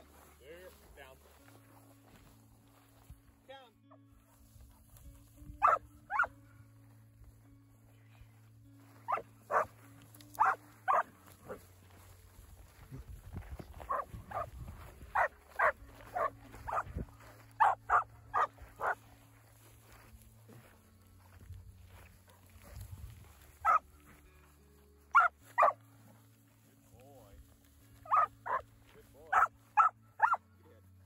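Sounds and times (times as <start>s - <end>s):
dog barking: 5.6s - 6.3s, 9.1s - 9.7s, 10.4s - 11.6s, 13.9s - 14.5s, 15.1s - 16.9s, 17.6s - 19.0s, 23.6s - 23.8s, 25.1s - 25.8s, 28.0s - 28.6s, 29.3s - 30.4s.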